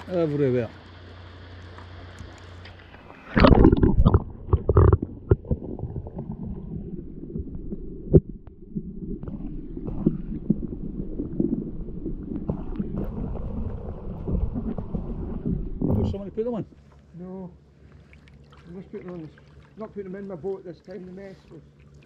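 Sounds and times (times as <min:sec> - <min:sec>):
underwater gurgling and rumble: 0:00.0 - 0:22.0
camera splashing into water: 0:02.7 - 0:06.2.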